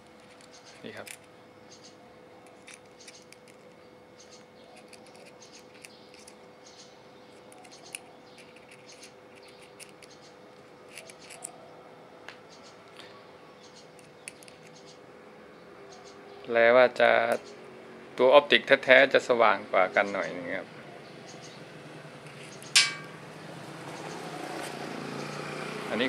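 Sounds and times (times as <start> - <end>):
pistols clicking and scraping: 0.0 - 1.4, 2.4 - 6.4, 7.3 - 11.6, 13.8 - 15.0, 22.2 - 23.2.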